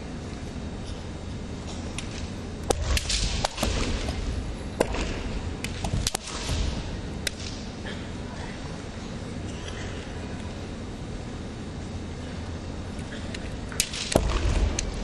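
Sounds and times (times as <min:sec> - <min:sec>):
bamboo swords cracking: 0:01.9 - 0:07.7, 0:13.7 - 0:15.0.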